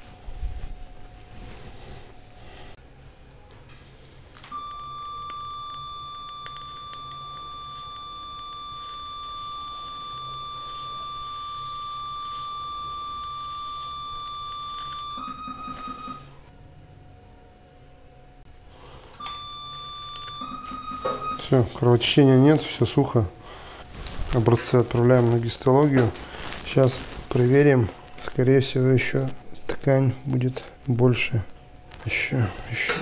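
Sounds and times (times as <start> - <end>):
sharp crackles: 4.5 - 15.2, 23.9 - 29.9, 31.8 - 32.3
high steady beep: 4.5 - 16.3, 19.2 - 21.7.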